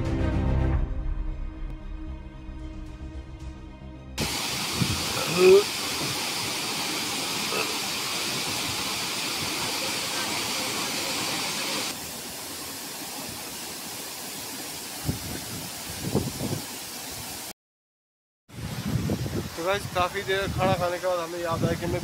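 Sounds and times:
waterfall rushing into pool: 4.2 - 17.6, 18.5 - 22.0.

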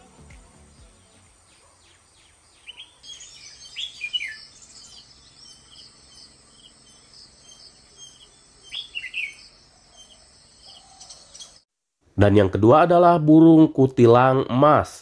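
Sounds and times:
bird singing warbling notes: 0.8 - 11.6.

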